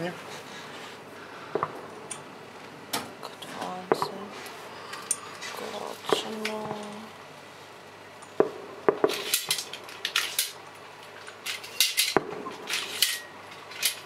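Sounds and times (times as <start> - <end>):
firework bangs: 1.5 - 2.0, 8.4 - 9.8, 12.1 - 13.0.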